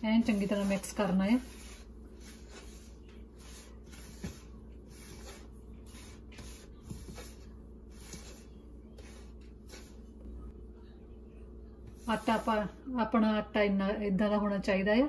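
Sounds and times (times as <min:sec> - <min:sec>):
hand rubbing flour in bowl: 0:00.0 - 0:10.4, 0:11.9 - 0:12.8.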